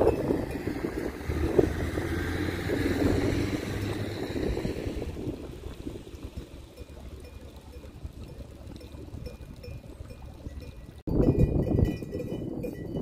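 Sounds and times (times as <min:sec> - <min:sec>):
van driving off: 0:00.0 - 0:08.8.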